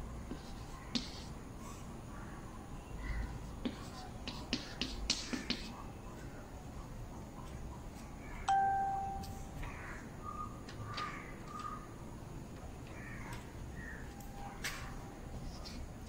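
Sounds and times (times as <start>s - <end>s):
bell ding: 8.5s - 9.5s.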